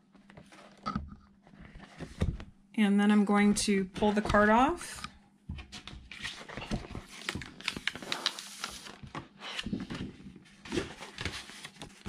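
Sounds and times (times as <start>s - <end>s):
paper crackling and rustling: 5.7s - 12.0s.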